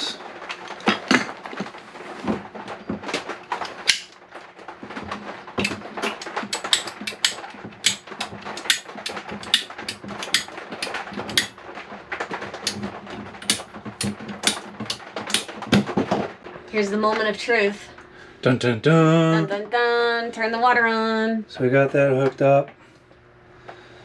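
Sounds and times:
plumbing fittings clicking and rattling: 0:02.6 - 0:16.3.

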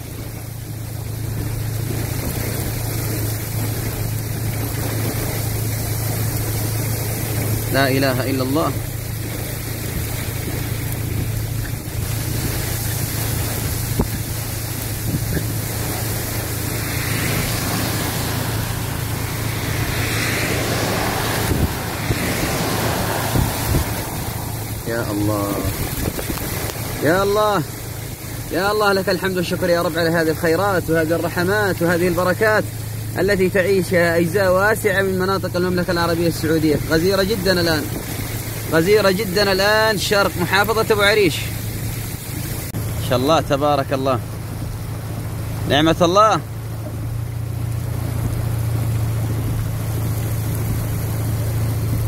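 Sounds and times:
low vehicle hum: 0:00.0 - 0:52.0
rain and road noise inside car: 0:00.0 - 0:52.0.

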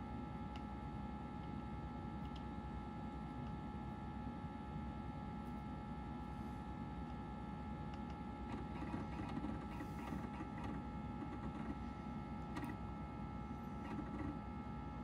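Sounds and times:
computer fan and drive hum: 0:00.0 - 0:15.0
hard drive seek clicks: 0:07.0 - 0:15.0.

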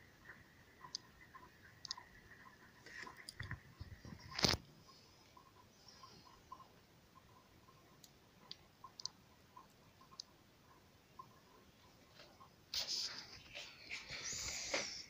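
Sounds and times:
faint ticks and clicks: 0:00.0 - 0:14.9.

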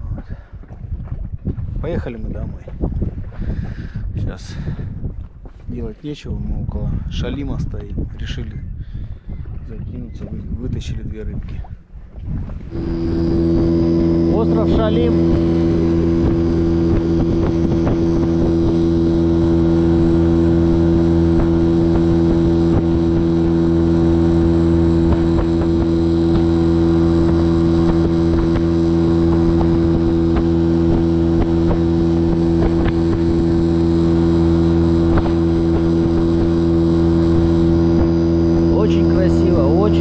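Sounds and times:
outboard motor humming: 0:11.4 - 0:40.0.

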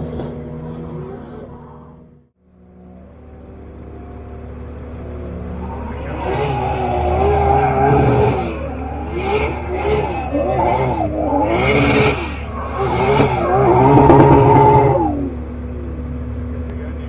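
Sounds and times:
car engine revving: 0:00.0 - 0:17.0
tyre squeal: 0:05.6 - 0:15.3.

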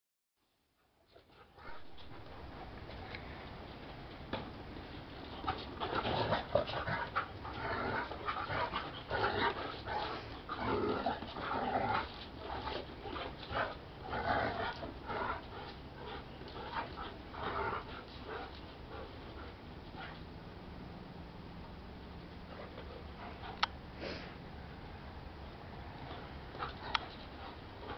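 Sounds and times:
dogs barking and growling: 0:05.1 - 0:20.2.

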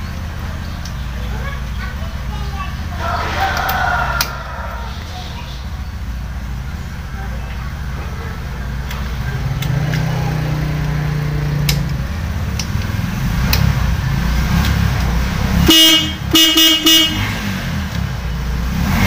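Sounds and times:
low steady rumble: 0:00.0 - 0:18.9
clicks: 0:00.4 - 0:01.1, 0:03.5 - 0:04.4, 0:08.8 - 0:11.0, 0:11.6 - 0:13.8, 0:14.6 - 0:15.1
electric horn honking: 0:15.6 - 0:17.6.

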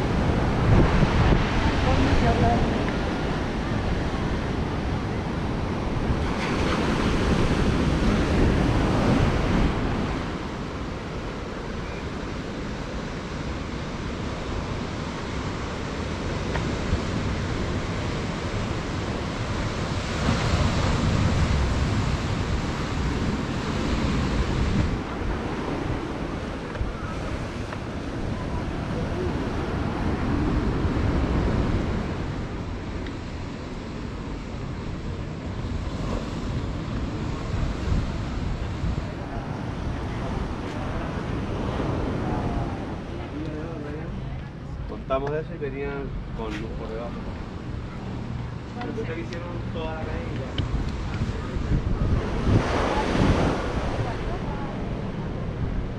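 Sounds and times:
surf breaking on rocks: 0:00.0 - 0:11.7
wind buffeting microphone: 0:00.0 - 0:55.9.

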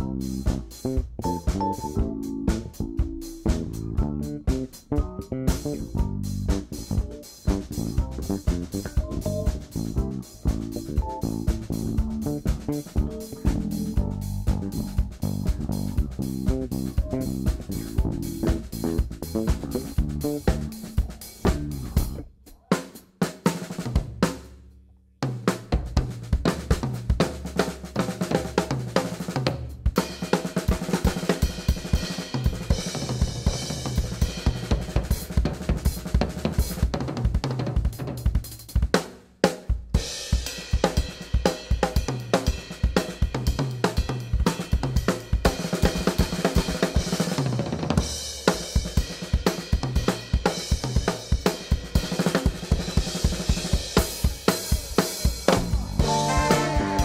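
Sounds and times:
drum kit solo: 0:00.0 - 0:57.0
horn section playing: 0:56.0 - 0:57.0.

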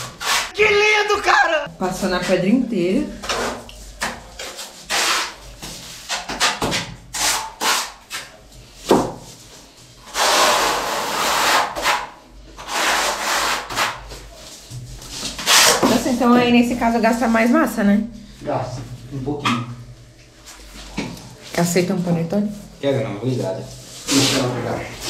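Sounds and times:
trowel scraping adhesive on wall: 0:00.0 - 0:00.6, 0:04.4 - 0:08.2, 0:10.0 - 0:14.2, 0:15.3 - 0:16.0.

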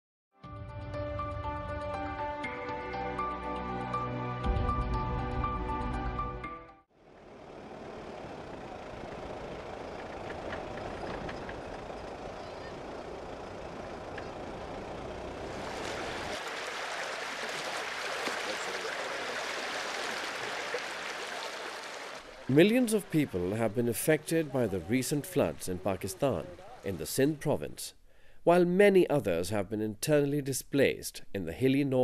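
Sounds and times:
vehicle engine rumble: 0:07.0 - 0:27.2
rush of floodwater: 0:15.4 - 0:24.5.

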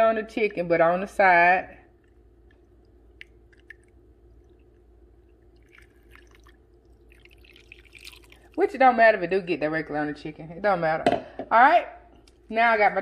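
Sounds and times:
water trickling into pot: 0:01.9 - 0:08.8
water drips and splashes: 0:02.0 - 0:08.7.

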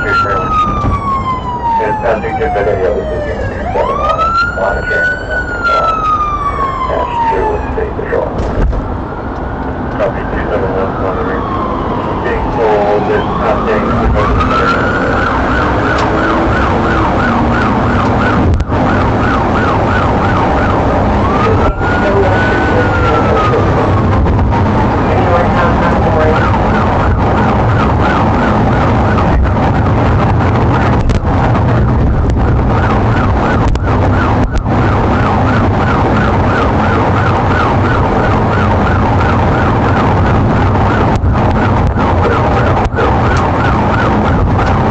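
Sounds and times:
engine and road noise: 0:00.0 - 0:44.9
police siren yelp and wail: 0:00.0 - 0:44.9.

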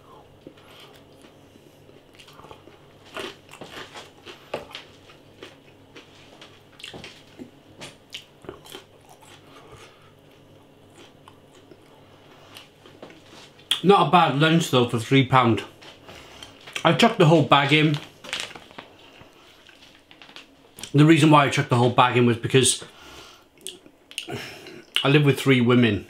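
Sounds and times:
person chewing crispy chicken: 0:00.4 - 0:13.8.

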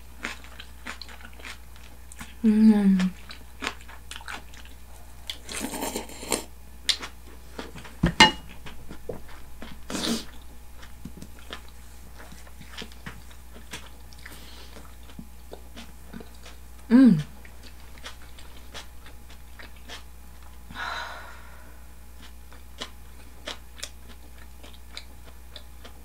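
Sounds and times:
chewing food: 0:00.0 - 0:20.7, 0:22.1 - 0:26.0
sharp ringing knock: 0:08.1 - 0:08.5.

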